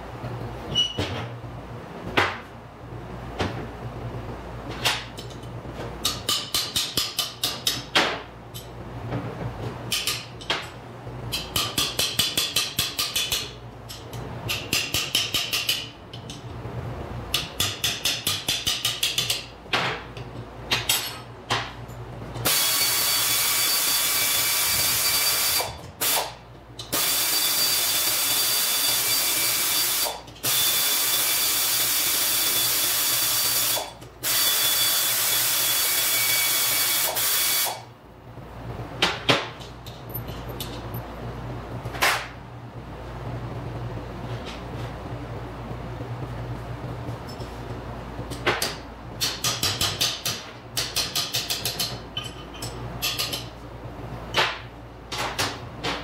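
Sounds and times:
pneumatic tool rapid hammering: 22.4s - 37.8s.

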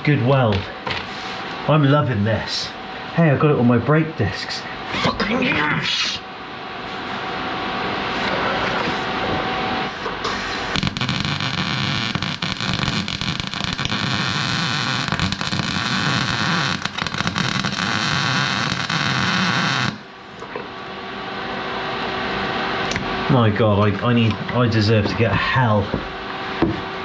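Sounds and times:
arc welder crackling and hissing: 9.9s - 23.0s.

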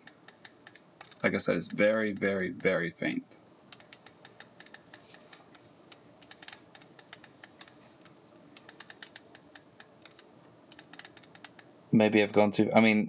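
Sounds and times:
film winding knob ratcheting clicks: 0.0s - 2.7s, 3.7s - 7.8s, 8.6s - 11.8s.

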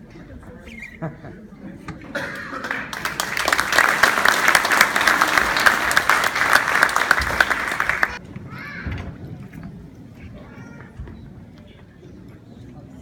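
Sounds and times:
audience applauding: 2.4s - 8.2s.

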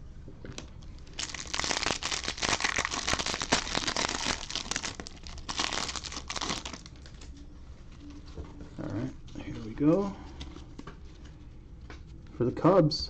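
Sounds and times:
foil wrapper tearing and crinkling: 1.0s - 7.2s.

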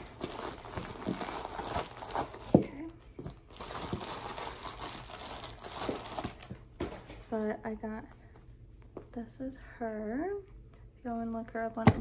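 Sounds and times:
tape ripping: 0.0s - 2.6s
packaging crinkling: 0.0s - 7.0s.

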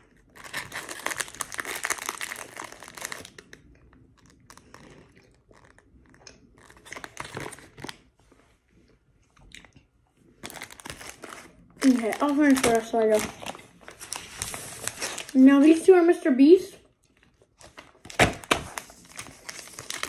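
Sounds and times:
plastic pouch crinkling: 0.3s - 8.0s, 10.4s - 15.8s, 17.5s - 20.0s.

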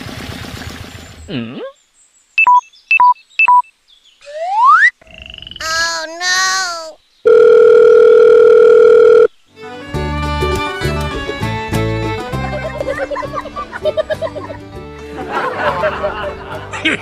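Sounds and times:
rising whistle: 4.2s - 4.9s
cartoon chirps: 4.2s - 5.0s
music with a beat: 9.9s - 12.9s.

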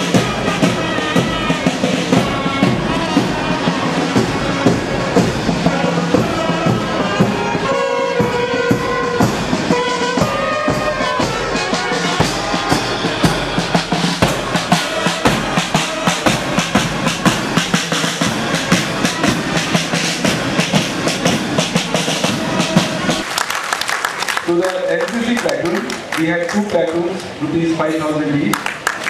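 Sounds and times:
bass drum and snare marching beat: 0.0s - 23.3s
marching band playing: 0.0s - 29.0s.

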